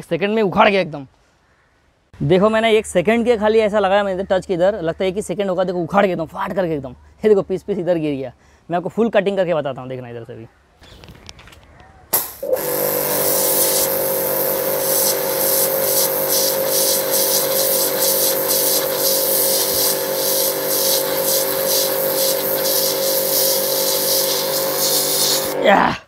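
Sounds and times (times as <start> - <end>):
pressure washer humming: 12.1 - 25.6
water jet hissing on brick: 12.1 - 25.6.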